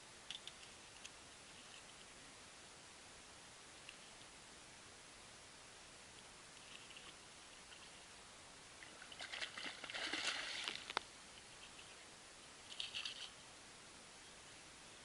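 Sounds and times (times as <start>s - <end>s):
fish splashing in water: 8.9s - 11.0s.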